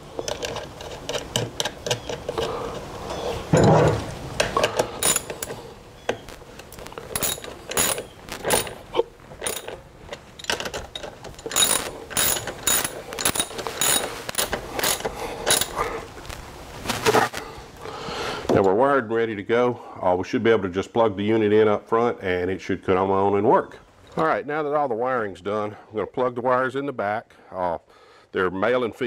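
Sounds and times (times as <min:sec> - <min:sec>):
ratchet wrench clicking: 0:11.4 - 0:15.7.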